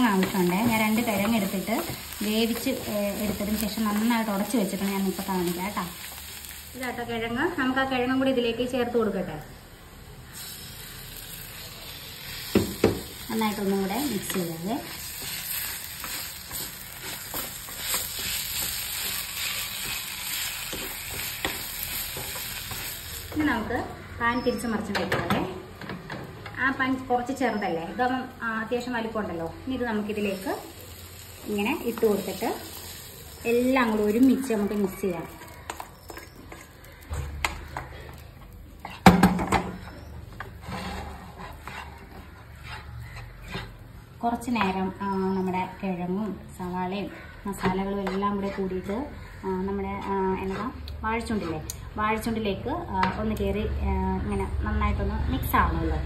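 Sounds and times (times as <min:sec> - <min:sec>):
food sizzling in a pan: 0:00.0 - 0:07.7, 0:09.6 - 0:23.7, 0:29.9 - 0:37.0
utensil scraping a pan: 0:38.8 - 0:44.0.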